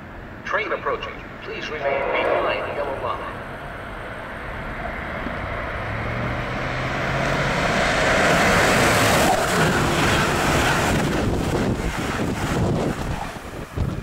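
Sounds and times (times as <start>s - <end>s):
train passing at high speed: 1.0s - 14.0s.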